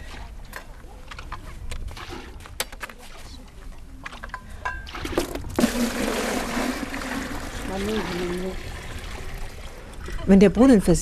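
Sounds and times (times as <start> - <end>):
water pouring into a bucket: 4.9 - 9.9.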